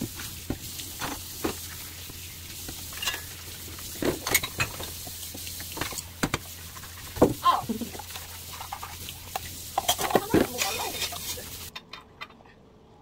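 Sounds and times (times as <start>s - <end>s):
food sizzling in a frying pan: 0.0s - 11.7s.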